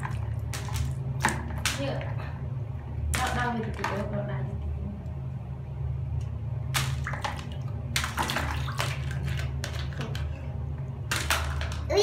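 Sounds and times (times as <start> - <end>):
water splashing in basin: 0.0 - 2.4, 3.0 - 4.4, 6.6 - 10.4, 11.0 - 11.9
steady low hum: 0.0 - 12.0.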